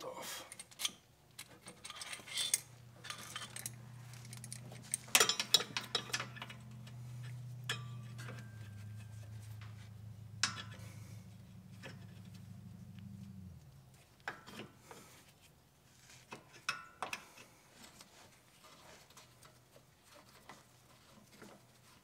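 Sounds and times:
low steady hum: 0:01.3 - 0:14.4
wrench clinking on metal bolt: 0:01.6 - 0:06.9, 0:10.4 - 0:10.8.

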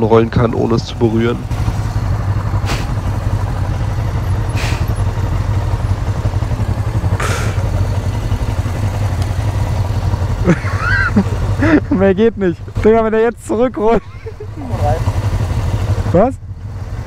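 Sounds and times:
motorcycle idling: 0:00.0 - 0:17.0
second motorcycle idling: 0:00.0 - 0:17.0
short hisses: 0:02.6 - 0:03.1, 0:04.5 - 0:05.0, 0:07.2 - 0:07.8.

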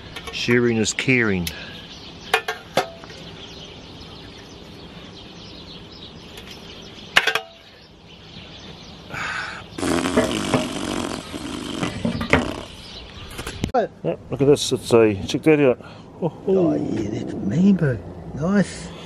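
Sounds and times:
low outdoor background: 0:00.0 - 0:19.0
burst of noise: 0:09.8 - 0:12.8.

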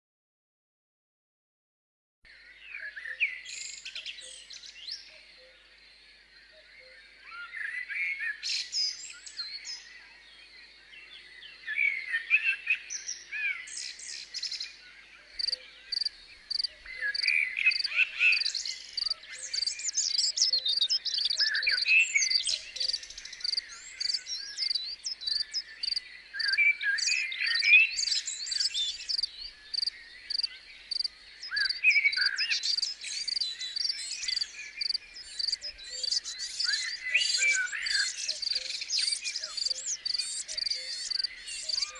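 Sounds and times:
birds singing: 0:02.3 - 0:41.9
cricket chirping: 0:15.4 - 0:20.3, 0:22.8 - 0:26.6, 0:28.0 - 0:36.5, 0:38.4 - 0:41.8.

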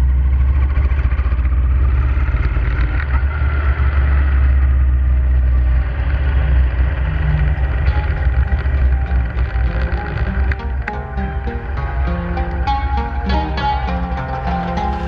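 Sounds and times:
motorcycle engine rumbling: 0:00.0 - 0:15.0
road noise: 0:00.0 - 0:15.0
wind noise: 0:03.8 - 0:15.0.

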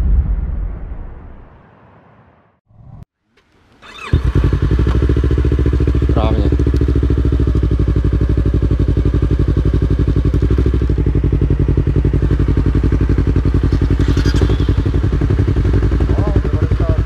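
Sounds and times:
motorcycle engine idling: 0:03.8 - 0:17.0.

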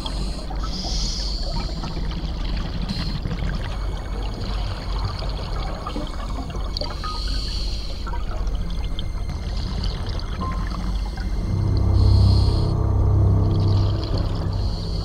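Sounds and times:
hiss: 0:00.0 - 0:02.0
underwater bubbling crackle: 0:00.0 - 0:12.6
low rumble: 0:08.1 - 0:15.0.

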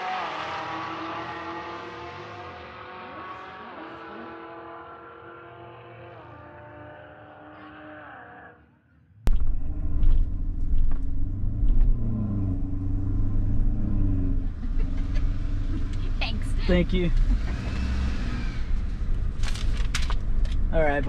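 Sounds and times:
low rumble of truck rolling: 0:09.3 - 0:21.0
truck engine running: 0:09.3 - 0:21.0.

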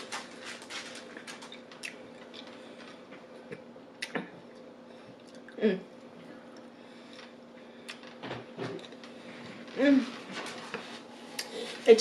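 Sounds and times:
chewing with light crunches: 0:00.0 - 0:08.2
faint steady hum: 0:00.0 - 0:12.0.

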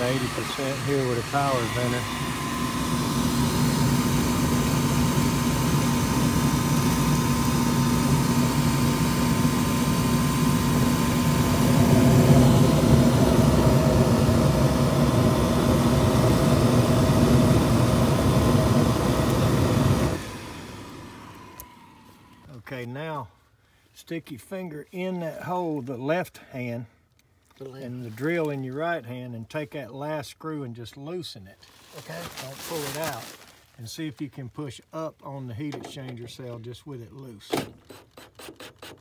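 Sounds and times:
furnace burner flame rushing: 0:00.0 - 0:20.3
fan hum: 0:00.0 - 0:23.0.

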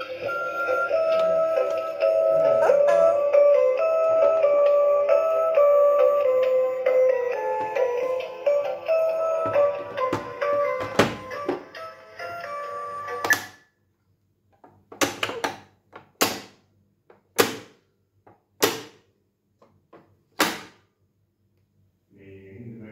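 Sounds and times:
electronic toy tune: 0:00.0 - 0:07.5
plastic lids snapping shut: 0:20.4 - 0:20.8.

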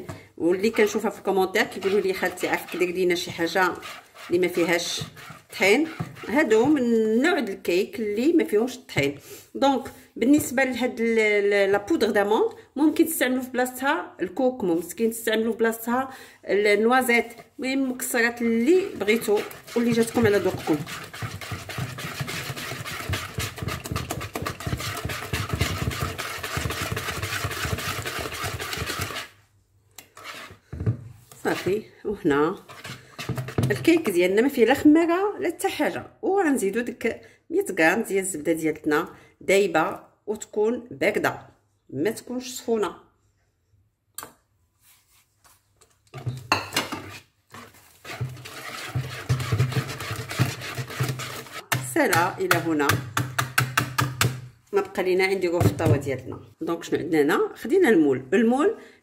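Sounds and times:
whisk beating batter in bowl: 0:00.6 - 0:07.0, 0:18.4 - 0:29.4, 0:30.1 - 0:31.8, 0:32.6 - 0:34.4, 0:46.3 - 0:54.4.

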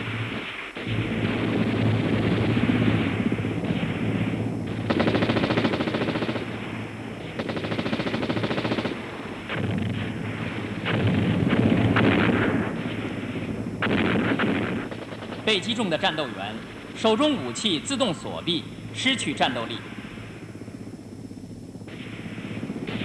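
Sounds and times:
machine-gun fire bursts: 0:00.0 - 0:10.0, 0:13.8 - 0:16.3
steady low rumble: 0:00.0 - 0:23.0.

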